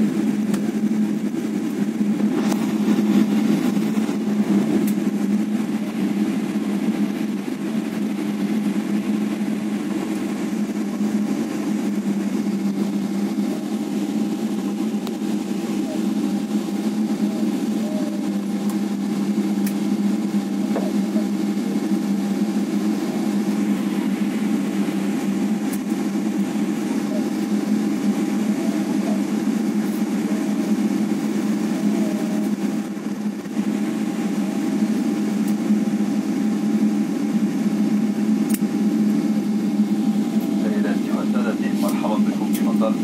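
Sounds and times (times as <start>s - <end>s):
airliner cabin drone: 0.0s - 43.0s
faint voices: 26.5s - 32.9s.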